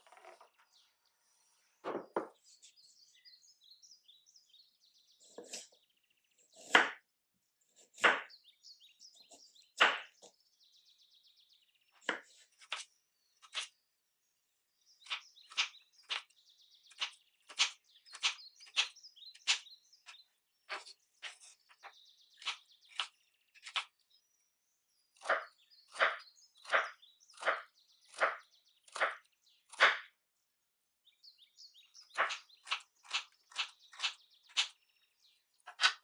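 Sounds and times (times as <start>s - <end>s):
knife chopping on cutting board: 6.6s - 7.0s, 8.0s - 8.3s.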